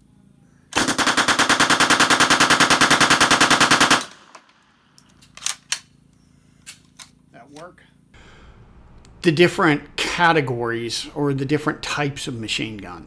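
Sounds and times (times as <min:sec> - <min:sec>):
submachine gun burst: 0:00.8 - 0:04.6.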